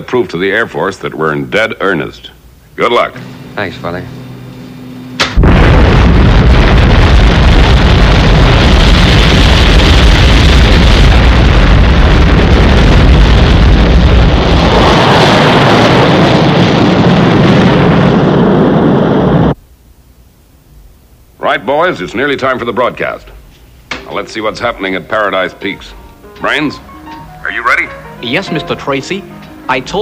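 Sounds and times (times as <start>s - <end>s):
rocket engine roaring: 5.2s - 19.6s.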